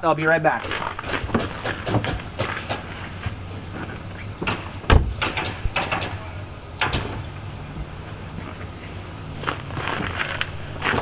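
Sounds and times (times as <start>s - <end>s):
car door clicks and knocks: 4.4s - 6.2s
car door thudding: 4.4s - 6.2s.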